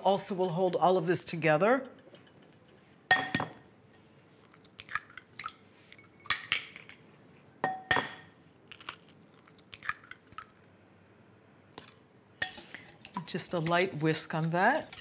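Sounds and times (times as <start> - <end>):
eggshell crunching: 8.7 - 10.7.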